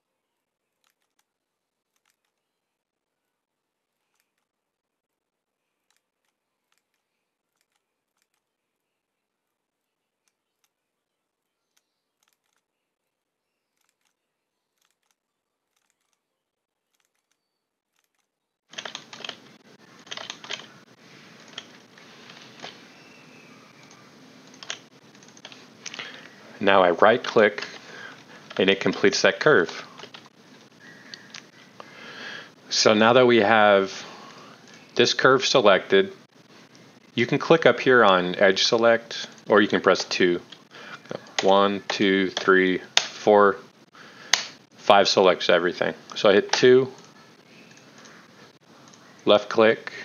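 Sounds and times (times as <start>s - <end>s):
computer mouse clicks: 11.7s - 12.6s, 18.0s - 20.8s, 21.4s - 22.8s, 23.7s - 26.4s
room noise hiss: 18.8s - 50.0s.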